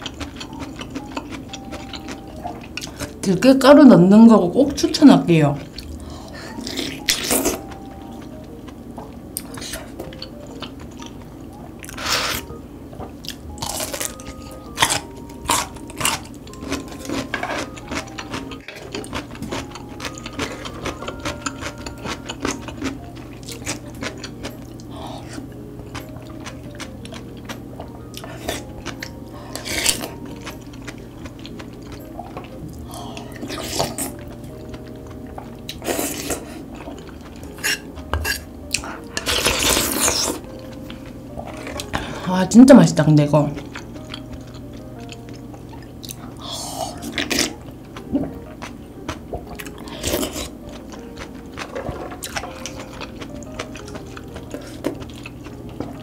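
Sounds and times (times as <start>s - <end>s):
chewing: 0.0s - 3.2s, 5.6s - 12.5s, 13.2s - 42.2s, 43.6s - 56.0s
utensils clinking against bowl: 15.6s - 24.2s.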